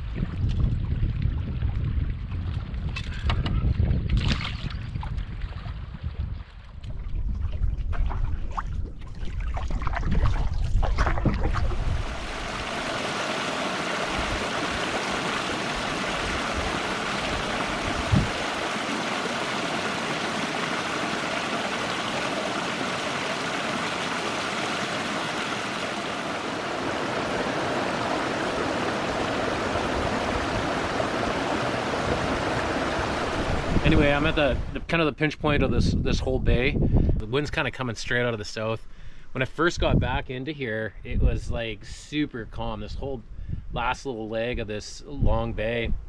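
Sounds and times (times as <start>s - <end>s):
wind rumble on microphone: 0.0s - 12.8s, 15.7s - 18.6s, 29.0s - 37.7s, 39.6s - 40.4s, 41.0s - 46.0s
stream cascading over rocks: 11.6s - 34.4s.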